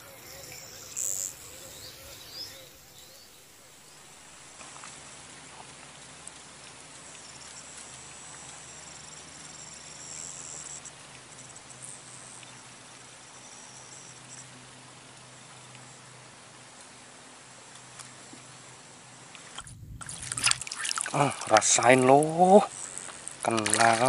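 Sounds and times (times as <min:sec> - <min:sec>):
high-pitched insect trill: 0:00.0 - 0:04.5, 0:08.6 - 0:12.0
steady hiss: 0:00.0 - 0:04.7.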